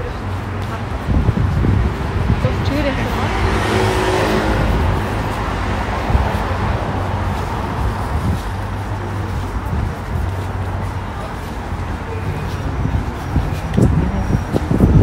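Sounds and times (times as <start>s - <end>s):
low traffic rumble: 0.0s - 15.0s
vehicle passing close by: 0.8s - 10.3s.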